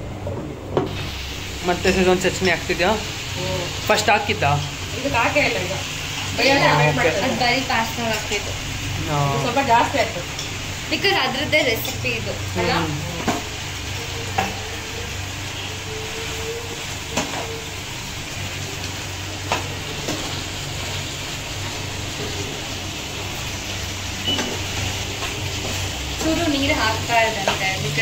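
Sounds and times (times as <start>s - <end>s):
chicken sizzling in oil: 0.9s - 28.0s.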